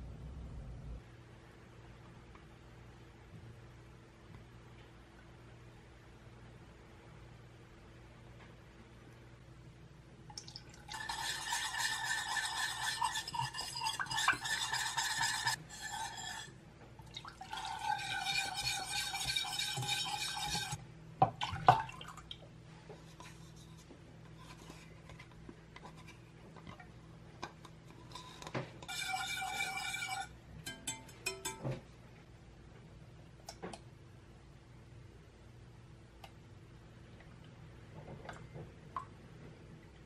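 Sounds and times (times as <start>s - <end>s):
milk pouring into saucepan: 10.4s - 20.8s
spatula scraping pan: 10.9s - 16.6s, 17.5s - 20.8s, 27.8s - 31.6s.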